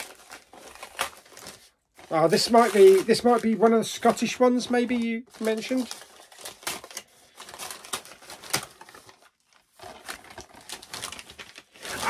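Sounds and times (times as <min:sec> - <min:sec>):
wrapping paper crinkling and tearing: 0:00.0 - 0:12.0.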